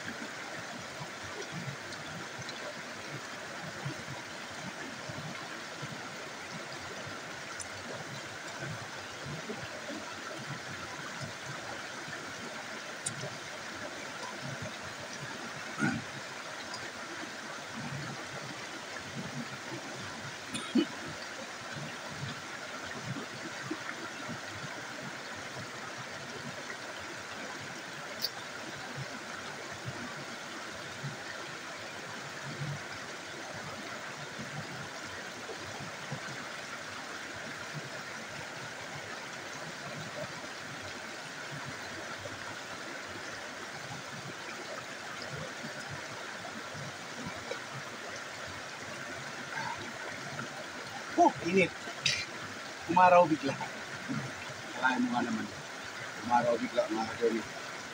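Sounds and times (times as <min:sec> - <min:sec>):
stream rushing over stones: 0:00.0 - 0:57.9.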